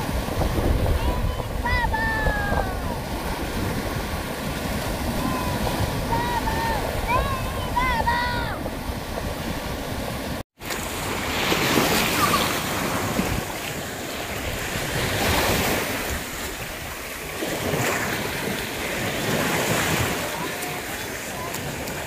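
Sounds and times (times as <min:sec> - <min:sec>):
wind rumbling on microphone: 0:00.0 - 0:10.4
sea waves washing over rocks: 0:00.0 - 0:22.0.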